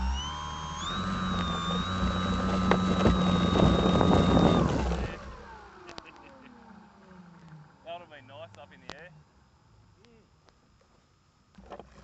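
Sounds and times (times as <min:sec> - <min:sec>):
model plane motor whining: 0:00.0 - 0:07.7.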